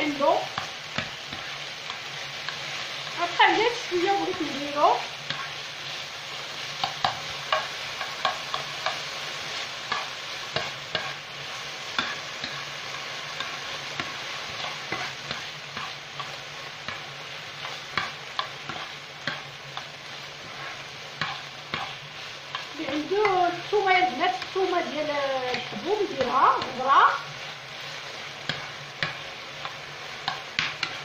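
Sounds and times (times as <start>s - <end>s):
chicken sizzling in a frying pan: 0.0s - 31.0s
metal spoon scraping and knocking pan: 0.5s - 3.2s, 6.7s - 9.1s, 9.8s - 11.3s, 11.9s - 26.9s, 28.3s - 31.0s.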